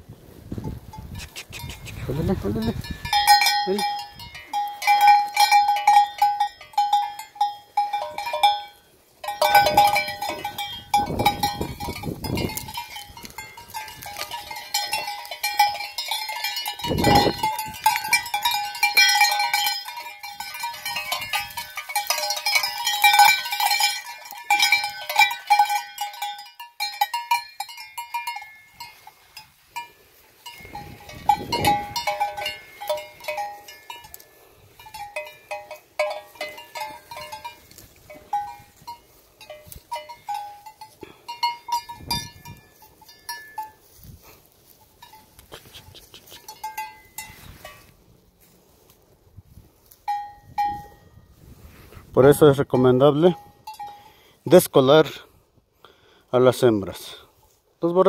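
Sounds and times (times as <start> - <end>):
sheep bell clanking: 0.6 - 48.8, 49.8 - 51.4, 52.2 - 55.4.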